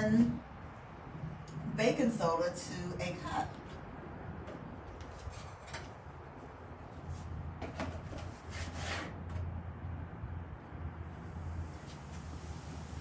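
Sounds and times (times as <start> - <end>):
low steady hum: 0.0 - 8.4.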